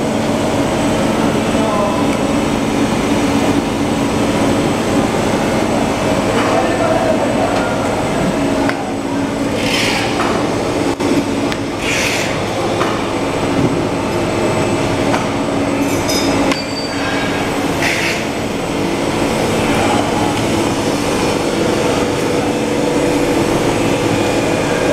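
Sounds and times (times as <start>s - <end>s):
machine motors and rollers humming: 0.0s - 24.9s.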